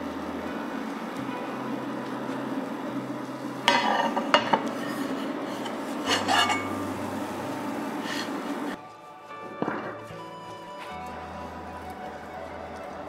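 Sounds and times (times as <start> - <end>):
pancake sizzling in butter: 0.0 - 9.2
plate scraping on frying pan: 3.6 - 7.3
plate clinks: 6.1 - 6.9.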